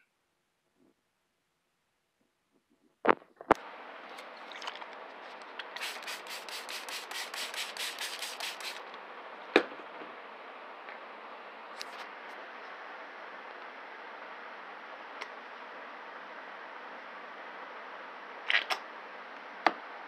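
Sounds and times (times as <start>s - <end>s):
steady hiss: 5.0s - 9.3s
hand tool rubbing wet hair: 5.7s - 8.8s.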